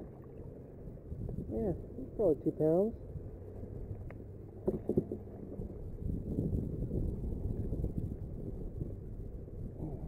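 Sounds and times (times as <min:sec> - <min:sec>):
wind buffeting microphone: 0:00.8 - 0:02.3, 0:04.9 - 0:10.0.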